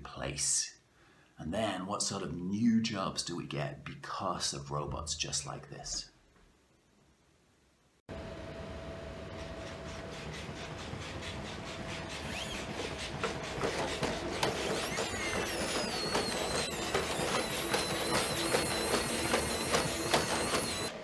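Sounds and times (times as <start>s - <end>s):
robot motors whining: 12.1s - 21.0s.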